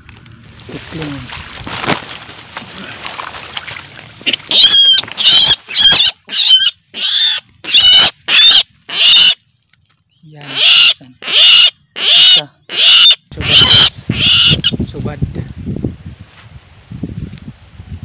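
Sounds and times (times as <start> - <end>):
rustling of stalks and water: 0.0 - 7.7, 8.7 - 11.1
bird distress squawks: 4.2 - 9.4, 10.4 - 14.8.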